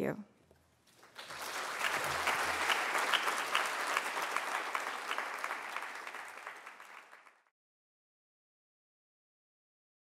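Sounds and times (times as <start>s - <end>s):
audience applauding: 0.9s - 7.5s.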